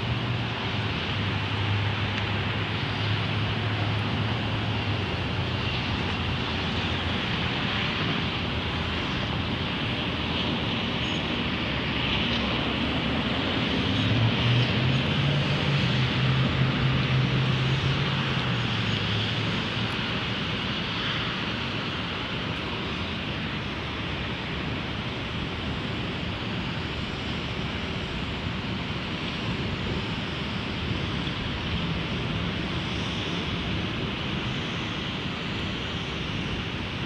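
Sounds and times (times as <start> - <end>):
distant city traffic roar: 0.0 - 37.0.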